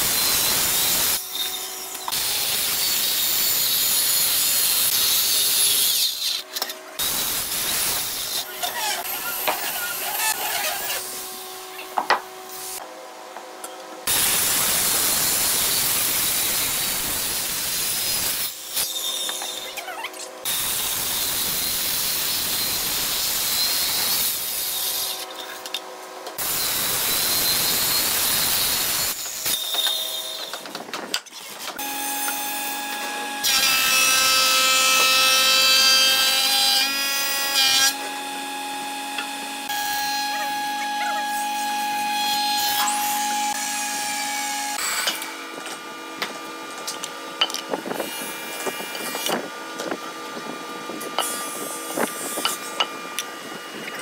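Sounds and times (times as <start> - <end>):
power saw cutting wood: 0.0 - 11.4, 20.4 - 25.3, 26.4 - 30.6, 31.7 - 54.0.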